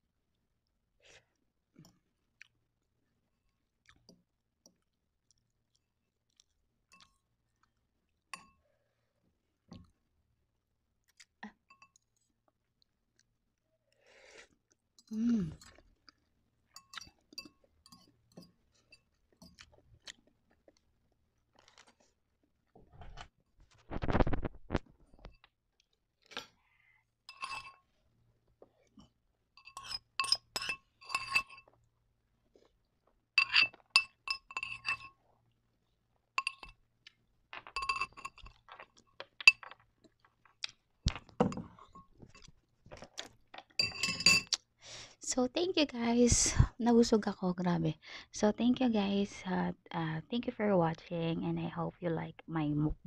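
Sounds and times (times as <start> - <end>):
fork clinking and scraping glass bowl: 16.7 - 19.6, 27.3 - 27.9, 29.6 - 31.8, 33.4 - 35.2, 36.4 - 36.8, 37.6 - 39.8, 43.6 - 44.6.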